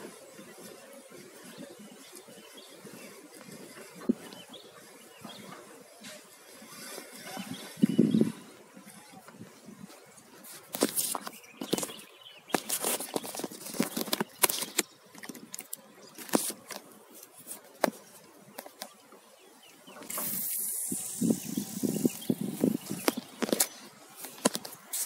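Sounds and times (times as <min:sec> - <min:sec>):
brief hiss: 0:20.0 - 0:22.2.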